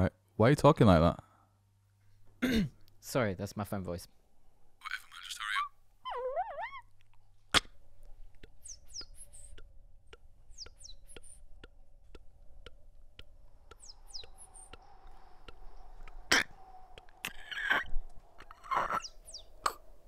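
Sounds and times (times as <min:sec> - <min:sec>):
faint steady hum: 0:00.0 - 0:20.0
beatboxed bird chirps: 0:07.5 - 0:19.9
beatboxed footstep clicks: 0:08.3 - 0:14.8.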